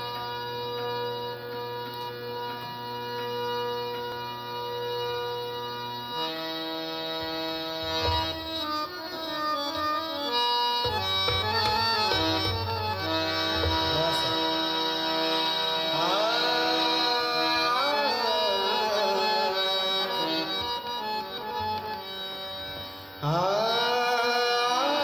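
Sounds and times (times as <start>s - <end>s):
harmonium melody: 0.0s - 25.0s
tabla bass strokes: 10.8s - 14.6s.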